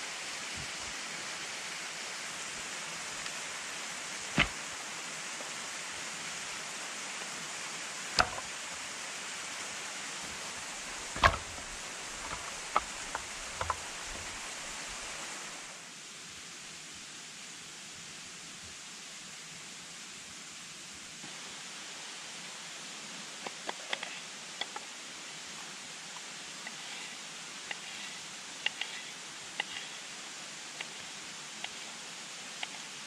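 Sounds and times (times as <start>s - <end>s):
stream rushing: 0.0s - 16.4s, 21.0s - 33.0s
firewood knocking together: 4.4s - 4.6s, 8.2s - 8.5s, 11.0s - 14.4s.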